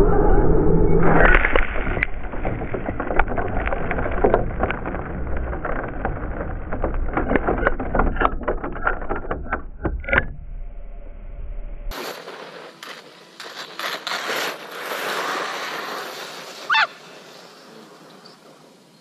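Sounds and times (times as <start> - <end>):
sand spraying onto camera: 11.9 - 19.0.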